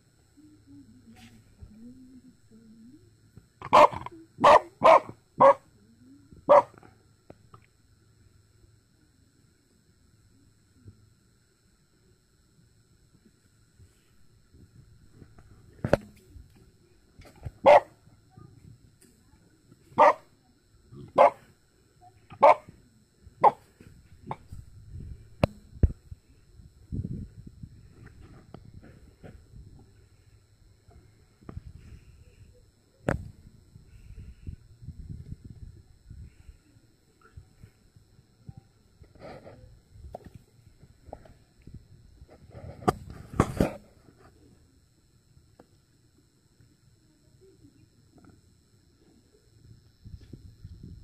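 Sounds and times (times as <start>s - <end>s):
small dog barking: 3.6s - 5.7s, 6.5s - 6.8s, 17.6s - 18.0s, 20.0s - 20.3s, 21.0s - 21.5s, 22.3s - 22.7s, 23.4s - 23.6s.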